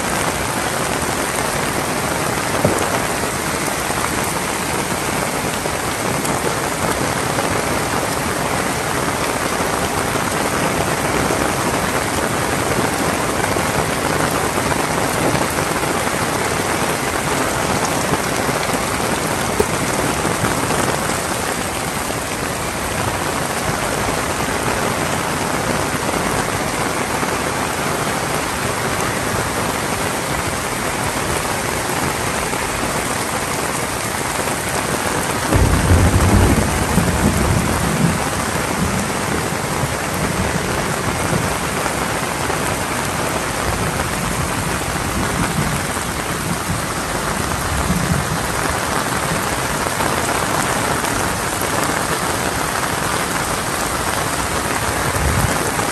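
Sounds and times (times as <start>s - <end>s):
heavy rain falling: 0.0s - 55.9s
thunder rumbling: 17.2s - 24.6s, 35.4s - 41.6s, 55.0s - 55.9s.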